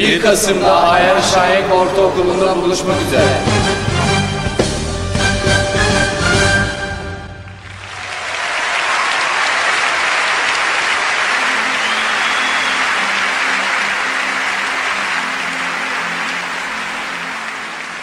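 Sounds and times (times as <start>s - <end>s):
crowd applause: 7.3s - 18.0s.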